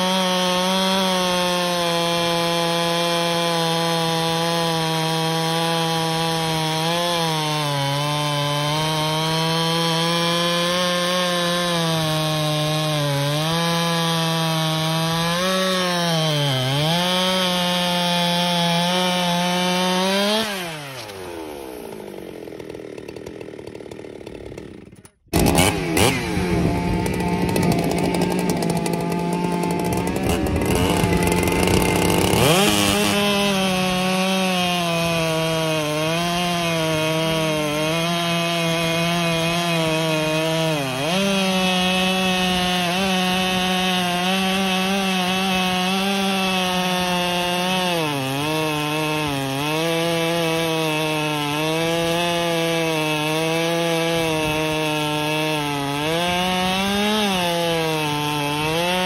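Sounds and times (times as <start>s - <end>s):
chainsaw cutting log: 0.0s - 59.0s
chainsaw idling: 0.0s - 59.0s.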